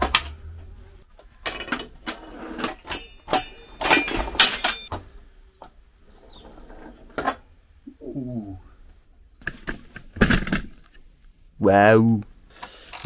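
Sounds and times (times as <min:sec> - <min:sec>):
metal parts clicking and knocking: 0:01.3 - 0:05.0.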